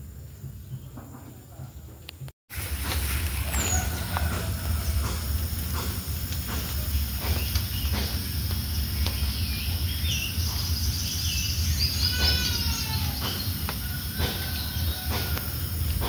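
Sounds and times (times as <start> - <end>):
birds chirping: 0.0 - 16.0
insects calling: 0.0 - 16.0
bird call: 3.3 - 5.9, 8.8 - 15.6.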